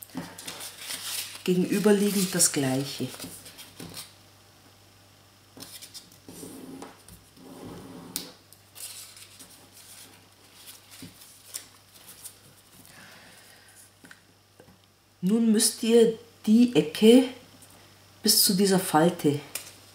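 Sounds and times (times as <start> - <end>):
paper rustling and crinkling: 0.0 - 4.1, 5.6 - 7.2, 8.7 - 13.5.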